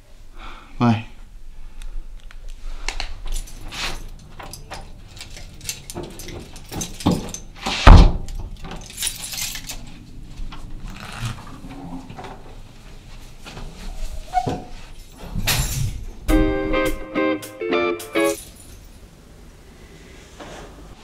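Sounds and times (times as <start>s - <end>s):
keys jangling: 3.2s - 10.1s, 14.8s - 16.3s, 18.0s - 19.1s
door shutting: 5.8s - 9.0s.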